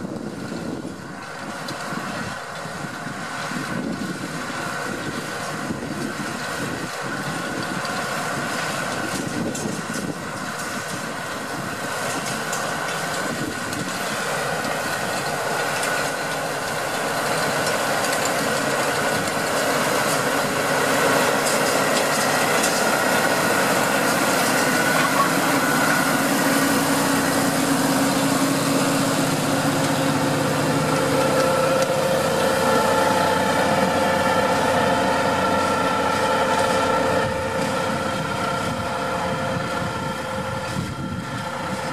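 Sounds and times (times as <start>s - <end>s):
tractor engine under load: 0.0s - 41.9s
high steady whine: 13.4s - 41.9s.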